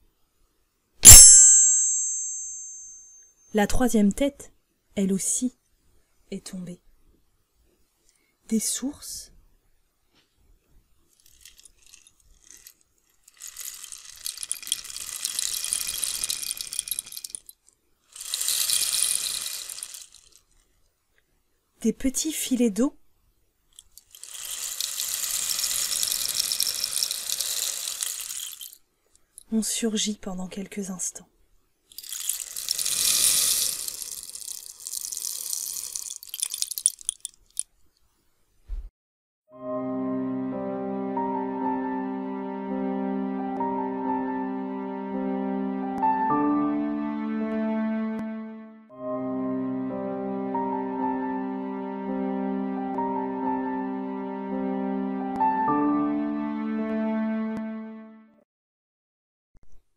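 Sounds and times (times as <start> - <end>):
percussion rattle clicks pouring: 11.1 - 20.6, 23.8 - 29.5, 31.9 - 37.7.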